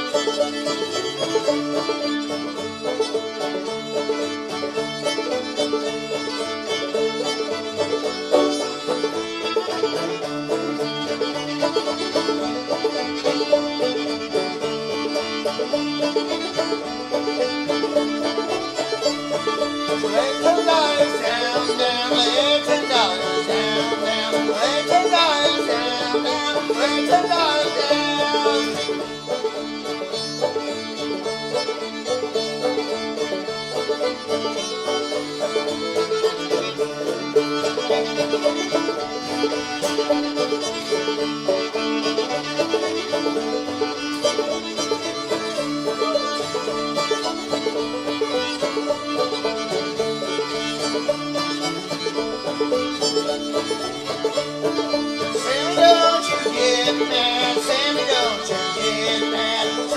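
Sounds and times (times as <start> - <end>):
string-band music with fiddle and banjo: 0.0 - 59.9.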